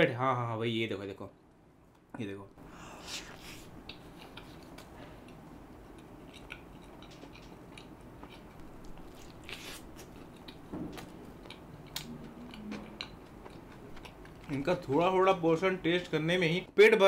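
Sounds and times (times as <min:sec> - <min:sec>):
wet chewing clicks and smacks: 0:03.8 - 0:15.1.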